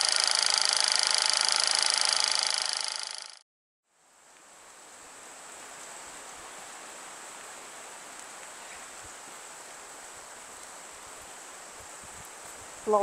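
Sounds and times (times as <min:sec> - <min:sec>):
high-pitched steady tone: 0:00.0 - 0:03.4
rain hissing: 0:03.9 - 0:13.0.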